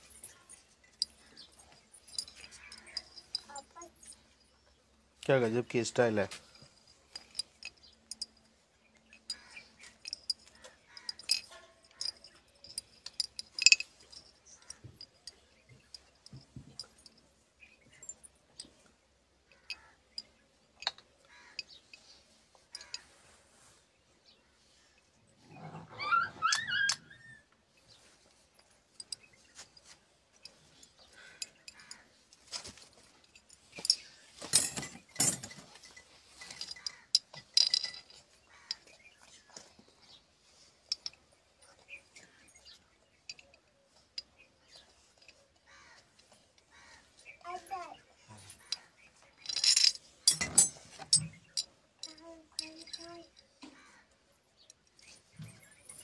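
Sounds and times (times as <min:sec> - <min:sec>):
metal rod clinking in glass bottle: 0:00.0 - 0:04.4, 0:06.6 - 0:18.8, 0:32.6 - 0:39.0, 0:48.5 - 0:53.4.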